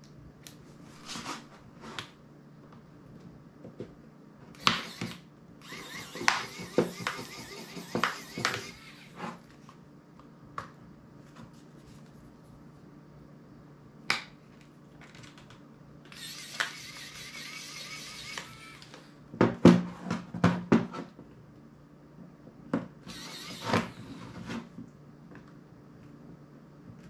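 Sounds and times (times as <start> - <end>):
screwdriver scraping: 4.6 - 9.4, 16.1 - 18.8, 23.1 - 24.3.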